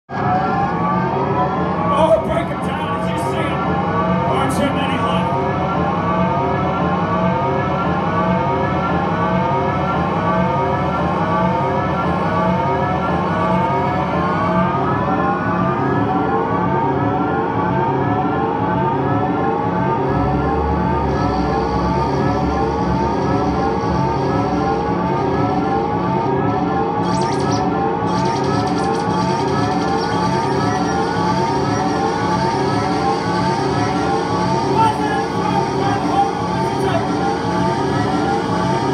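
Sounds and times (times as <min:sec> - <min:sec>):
pulsing chopped low drone: 0:18.7 - 0:38.9
siren-like rising electronic sweep: 0:20.0 - 0:38.9.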